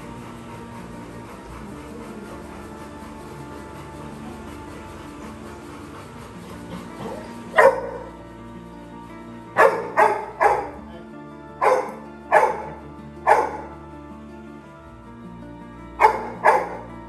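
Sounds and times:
background music: 0.0 - 17.0
puppy barking: 6.6 - 8.2, 9.6 - 10.8, 11.6 - 13.8, 16.0 - 16.9.

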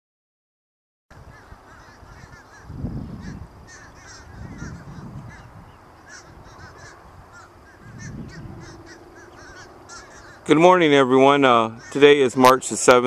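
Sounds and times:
flock of birds calling: 1.1 - 13.0
low rumbles: 1.3 - 11.1.

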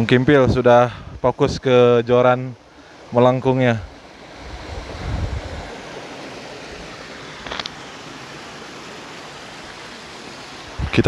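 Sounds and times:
stream rushing over stones: 2.6 - 11.0.

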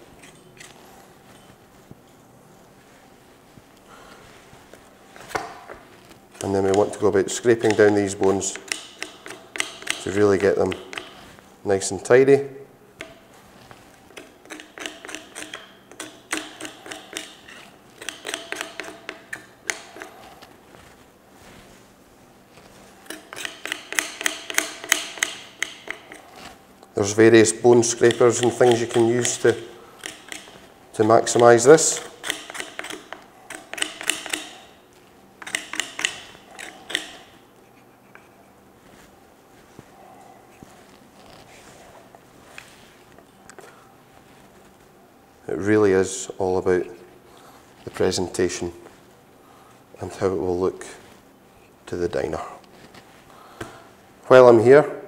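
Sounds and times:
knife scraping bones: 14.1 - 20.5, 23.0 - 26.6, 27.7 - 30.6, 31.3 - 34.7, 35.4 - 38.4.

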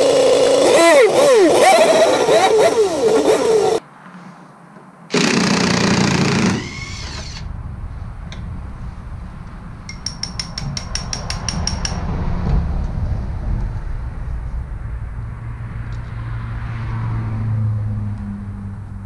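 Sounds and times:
snowmobile engine revving: 0.0 - 3.8
impact driver burst: 5.1 - 7.5.

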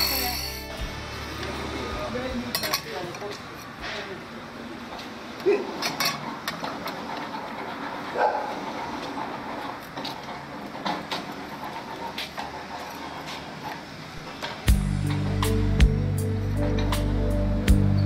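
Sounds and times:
music: 0.0 - 2.4, 14.7 - 18.0.

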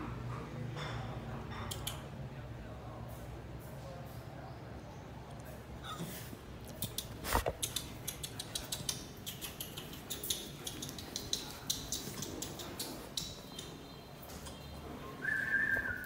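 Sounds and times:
dog claws clicking on tile floor: 1.5 - 2.2, 6.7 - 14.6.

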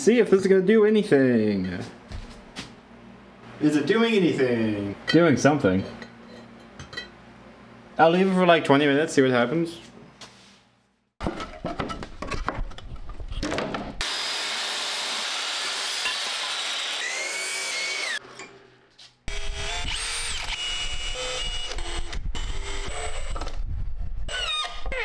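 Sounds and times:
power saw cutting wood: 14.0 - 18.3
cordless drill driving screw: 19.3 - 23.5.

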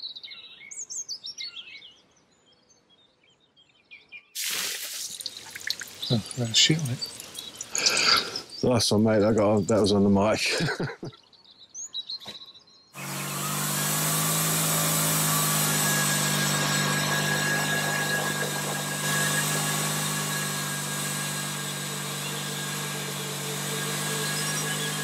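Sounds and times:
engine hum: 5.0 - 10.2, 13.0 - 25.0
band saw cutting log: 5.9 - 8.5, 13.0 - 25.0.

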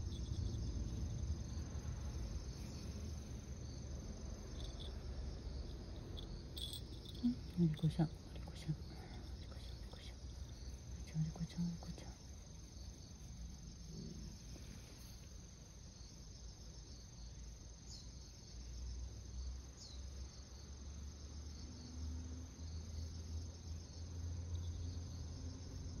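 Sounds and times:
insect chirring: 0.0 - 20.7.

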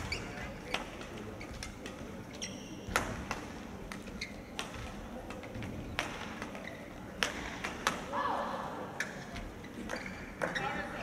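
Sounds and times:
shoe squeak on court floor: 0.0 - 3.0, 4.1 - 4.8, 6.5 - 7.0, 9.6 - 10.8
low hall murmur: 0.0 - 11.0
racket hitting shuttlecock: 2.8 - 6.6, 7.2 - 8.1.

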